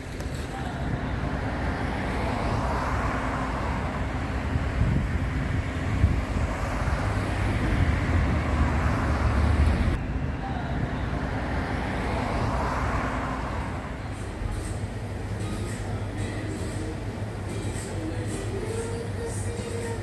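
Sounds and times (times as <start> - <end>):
road traffic: 0.0 - 20.0
car driving past: 1.1 - 10.0, 11.0 - 14.7.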